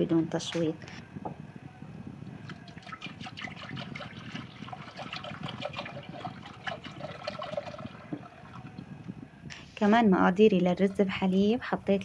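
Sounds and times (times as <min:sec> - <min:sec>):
milk pouring into metal pot: 0:02.6 - 0:08.7.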